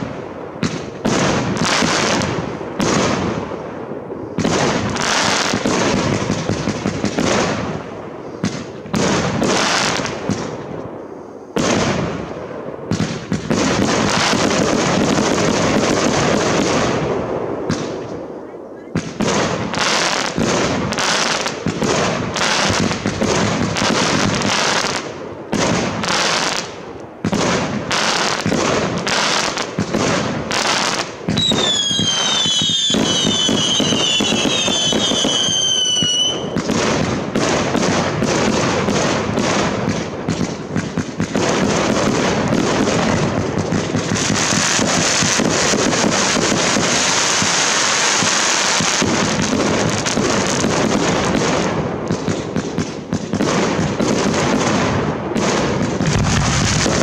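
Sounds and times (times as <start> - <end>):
firework bangs: 0.0 - 57.0
firework crackling: 0.0 - 57.0
firework whistles falling in pitch: 31.3 - 36.6.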